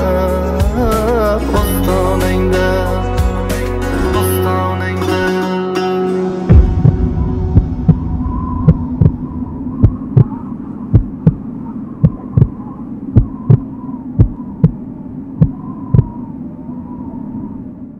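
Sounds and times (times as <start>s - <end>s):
heartbeat thumps: 6.5s - 14.8s, 15.4s - 16.2s
steady low hum: 6.5s - 17.9s.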